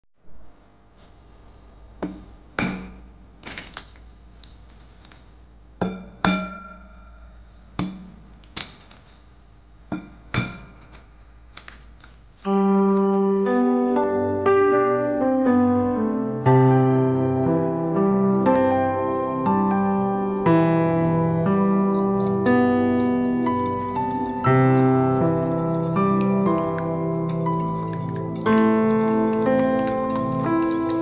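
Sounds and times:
piano music: 12.5s - 31.0s
eggs cracking on ceramic bowl: 21.9s - 31.0s.

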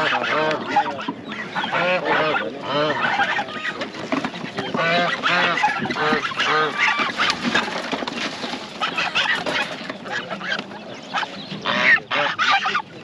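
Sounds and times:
poultry calling: 0.0s - 13.0s.

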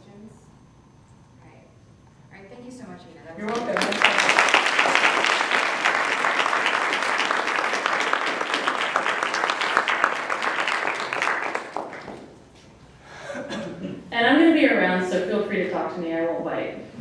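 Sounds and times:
audience applauding: 3.4s - 12.4s.

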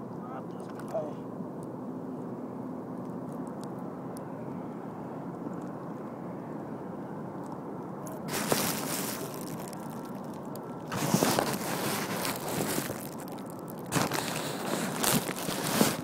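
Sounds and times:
phone handling rustling and scraping: 8.1s - 16.0s.

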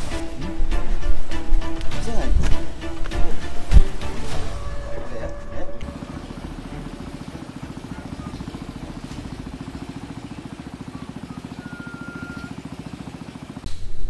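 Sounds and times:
small boat engine chugging: 4.8s - 13.7s.

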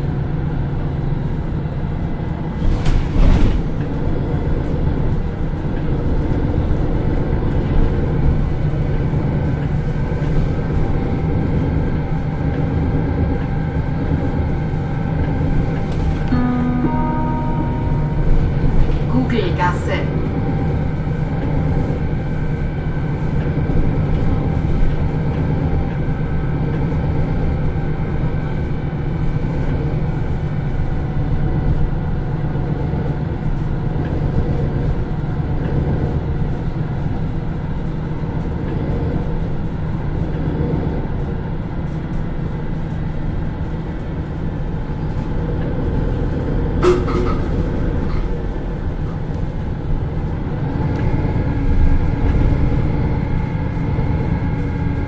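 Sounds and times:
bus diesel engine drone: 0.0s - 55.0s
sharp knock or ding: 16.3s - 19.1s.

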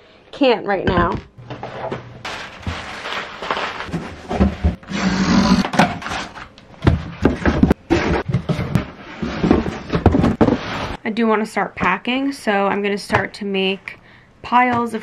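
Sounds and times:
cardboard boxes scraping and rustling: 1.6s - 4.8s, 7.8s - 11.0s
boxes knocking: 6.8s - 10.6s.

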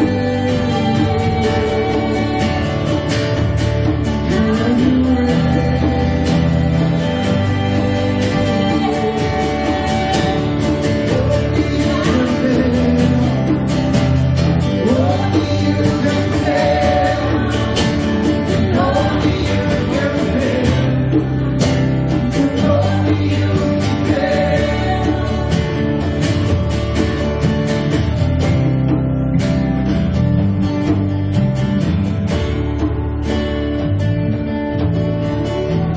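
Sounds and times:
person singing: 0.0s - 26.5s
worship band playing: 0.0s - 35.9s.

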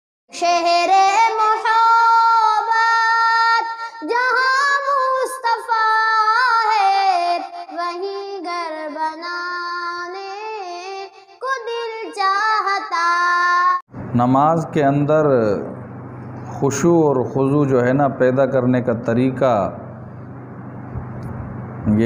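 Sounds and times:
high-pitched voice singing: 0.3s - 13.8s.

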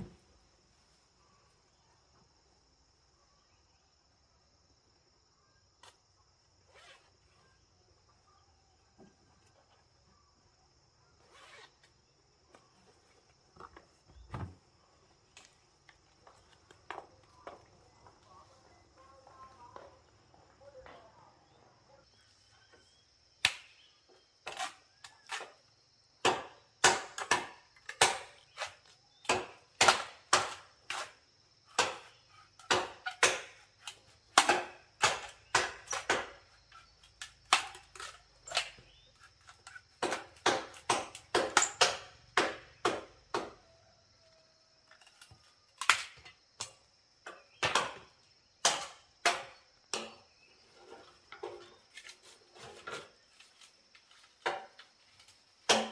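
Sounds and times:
sharp chopping strikes: 26.2s - 28.4s, 29.3s - 31.1s, 31.7s - 33.6s, 34.4s - 36.4s, 55.7s - 55.9s.

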